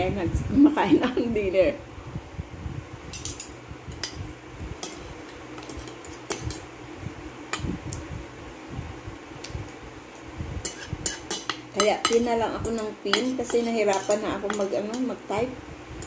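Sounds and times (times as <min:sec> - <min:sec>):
cutlery clinking on ceramic plate: 0:10.7 - 0:15.0.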